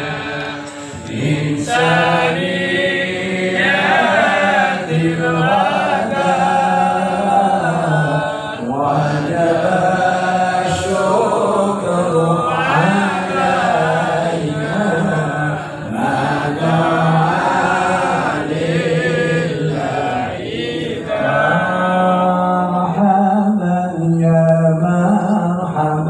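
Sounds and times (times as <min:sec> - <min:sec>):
man chanting through microphone: 0:00.0 - 0:26.0.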